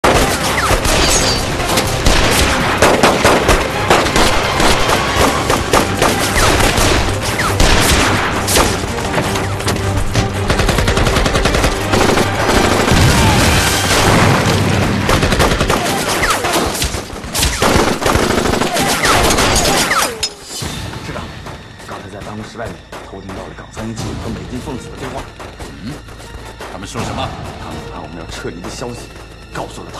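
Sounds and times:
rapid gunshots: 0.0s - 9.6s, 10.2s - 20.2s.

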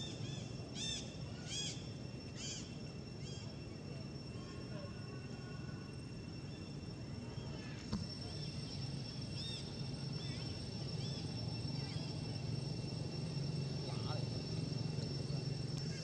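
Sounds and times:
high-pitched drone: 0.0s - 16.0s
short chirping calls: 7.4s - 16.0s.

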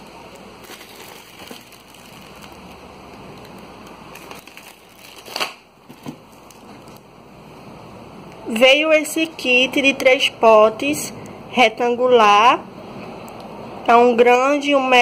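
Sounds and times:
plastic shrink-wrap crinkling: 0.0s - 7.1s.

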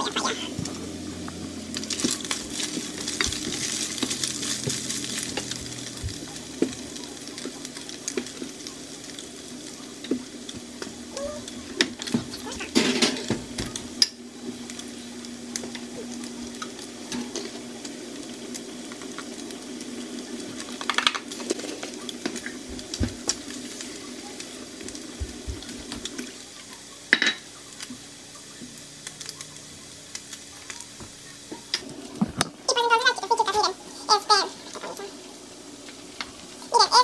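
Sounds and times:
meat sizzling in a skillet: 0.0s - 37.0s
utensils and dishes clinking: 11.2s - 14.2s, 27.1s - 27.5s.

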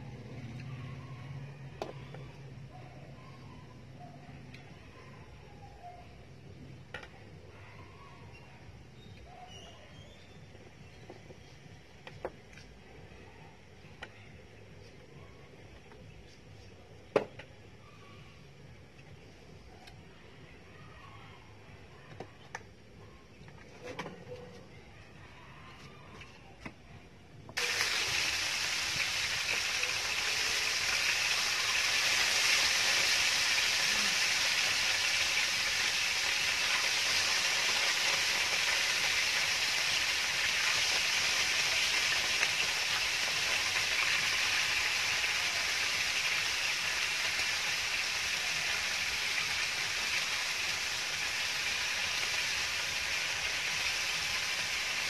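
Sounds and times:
chicken sizzling on grill pan: 27.6s - 55.0s.

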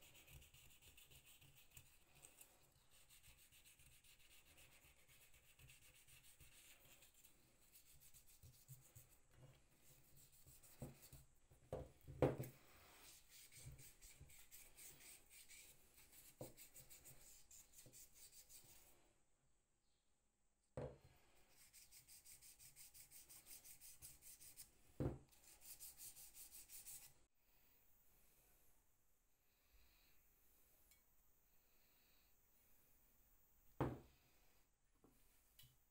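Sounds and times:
hands rubbing metal parts: 12.4s - 18.9s.

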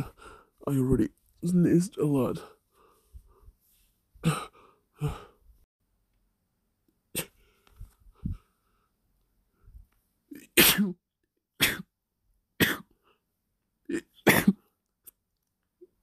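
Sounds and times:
person sneezing: 7.1s - 7.4s, 10.4s - 11.0s, 11.6s - 11.9s.

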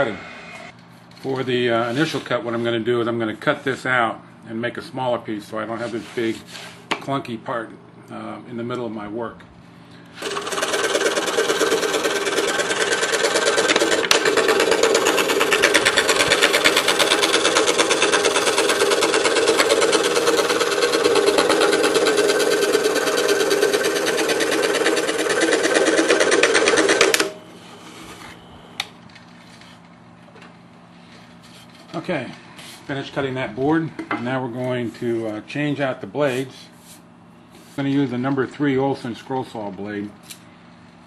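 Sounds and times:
scroll saw buzzing through wood: 10.2s - 27.3s.

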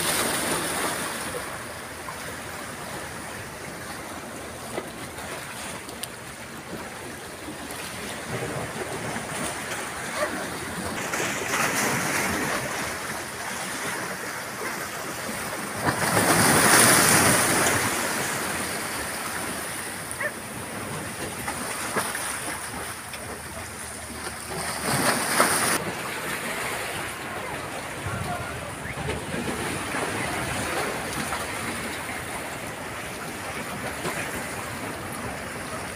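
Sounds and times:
sea waves washing against rocks: 0.0s - 35.9s
wave splashing on rocks: 7.7s - 35.9s.

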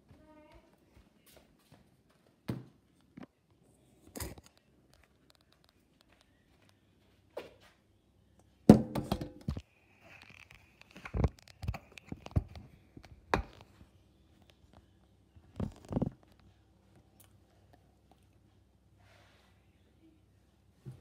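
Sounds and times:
metal bowl knocking in sink: 8.7s - 9.5s.

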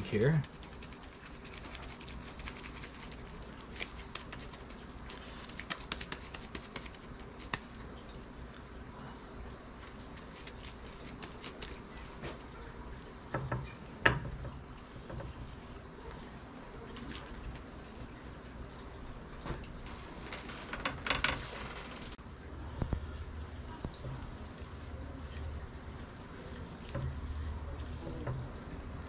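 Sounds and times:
hands patting food patty: 3.7s - 7.8s.

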